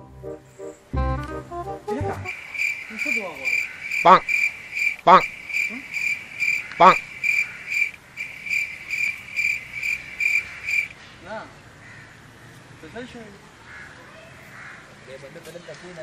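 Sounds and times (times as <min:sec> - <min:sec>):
cricket chirping: 0:02.2 - 0:11.0
person making short pitched sounds: 0:05.0 - 0:05.9.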